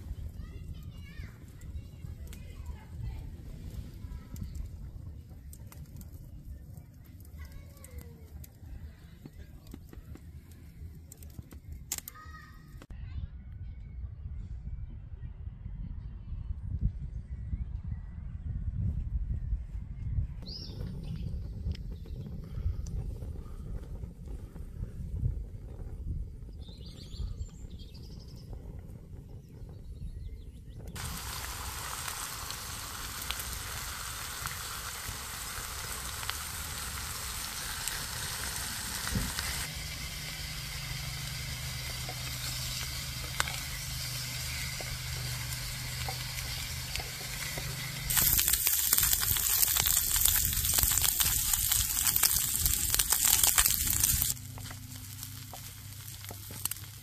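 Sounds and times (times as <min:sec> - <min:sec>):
low outdoor rumble: 0:00.0 - 0:57.0
food sizzling in a pan: 0:31.0 - 0:57.0.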